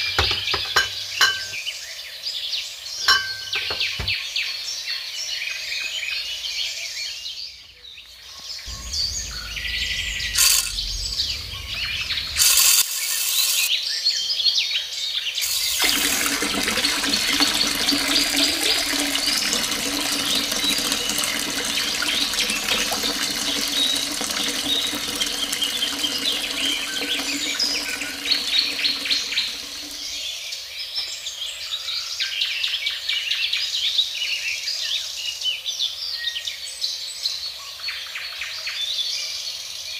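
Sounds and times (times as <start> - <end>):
water running: 0.6 - 1.6, 3.0 - 4.2, 8.7 - 12.6, 15.4 - 30.3
birds chirping: 7.5 - 13.7, 15.4 - 30.3
electric water pump humming: 8.7 - 13.7, 15.4 - 30.3.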